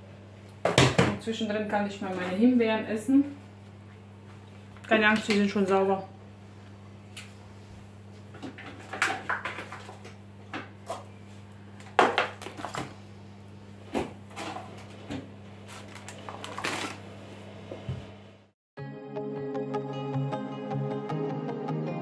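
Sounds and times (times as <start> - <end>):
refrigerator hum: 0.0 - 18.5
containers knocking and clicking: 8.4 - 11.1.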